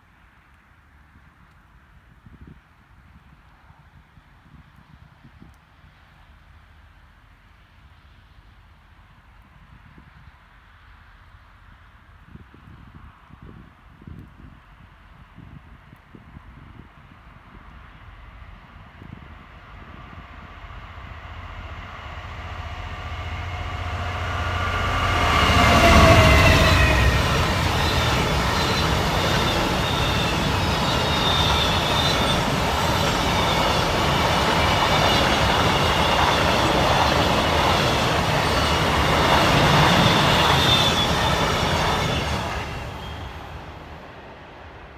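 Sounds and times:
diesel locomotive engine passing: 17.0 - 44.9.

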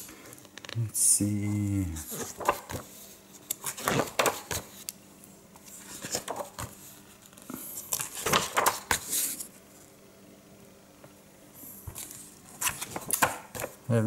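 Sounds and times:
book pages being turned: 0.0 - 0.8, 1.6 - 5.0, 5.6 - 9.9, 11.8 - 13.8.

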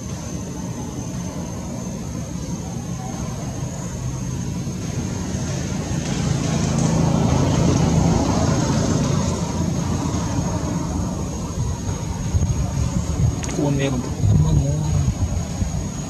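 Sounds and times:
high-pitched whine: 0.0 - 16.0
vehicle engine droning: 0.0 - 16.0.

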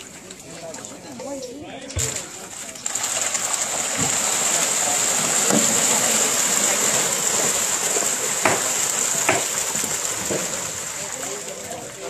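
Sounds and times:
fish thrashing and splashing water: 2.0 - 12.0
sharp water hit: 2.9 - 11.3.

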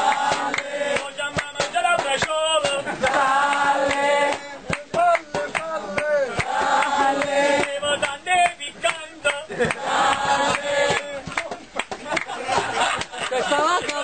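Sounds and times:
sharp knocks or claps: 0.1 - 13.3.

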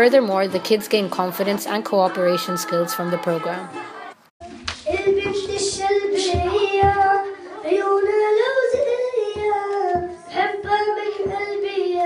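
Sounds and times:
boy singing into microphone: 2.0 - 4.0, 4.8 - 12.0.

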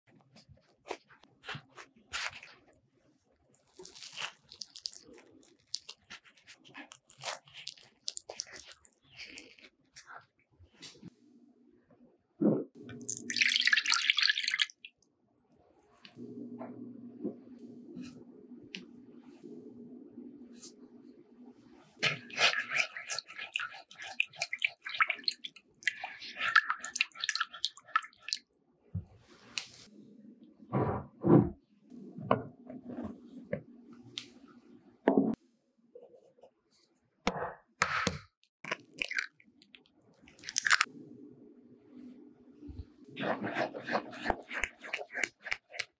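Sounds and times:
spatula stirring wet mixture: 0.3 - 10.2, 22.0 - 28.4, 43.1 - 45.9
bread crust crackling and tearing: 3.5 - 9.5.

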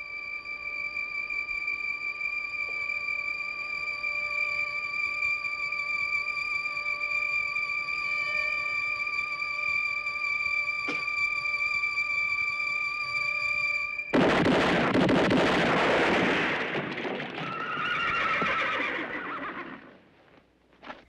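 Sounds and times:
revolver gunfire: 14.1 - 17.6
horses whinnying: 17.2 - 20.0.

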